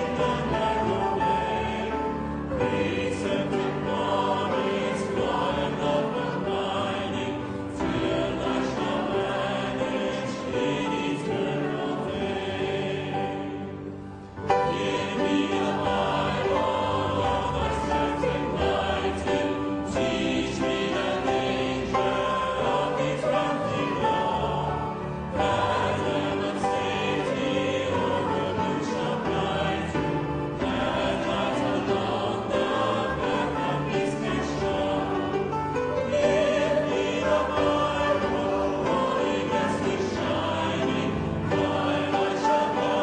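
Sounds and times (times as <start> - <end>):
choir singing: 0.0 - 43.0.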